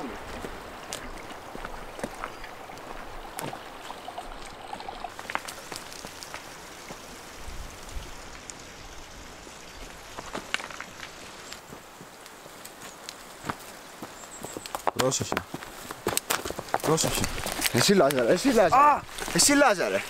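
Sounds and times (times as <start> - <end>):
river water flowing: 0.0 - 14.3.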